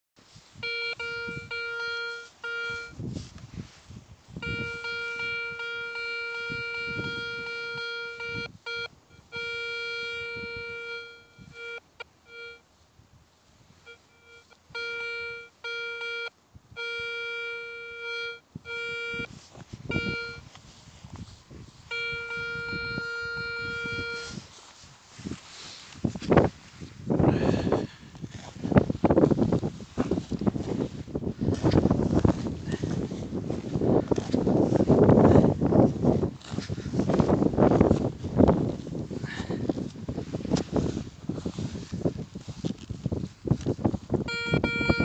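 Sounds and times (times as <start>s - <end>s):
coil rustling over grass: 0.2s - 8.6s, 19.2s - 44.3s
metal detector beeping: 0.6s - 3.0s, 4.4s - 12.6s, 13.9s - 20.5s, 21.9s - 24.5s, 44.3s - 45.0s.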